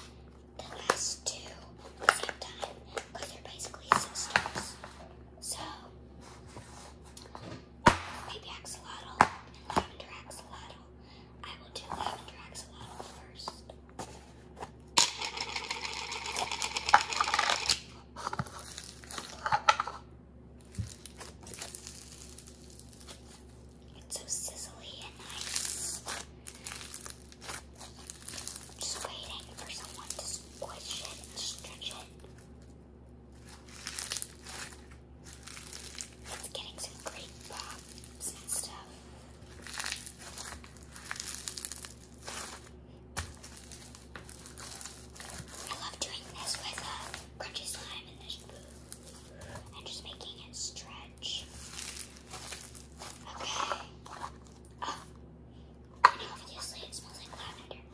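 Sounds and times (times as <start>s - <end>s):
slime crackling and tearing: 20.6s - 23.6s, 25.2s - 29.0s, 33.4s - 38.2s, 39.5s - 45.8s, 51.5s - 53.2s
slime clicking and crackling: 25.2s - 31.9s, 39.5s - 47.2s.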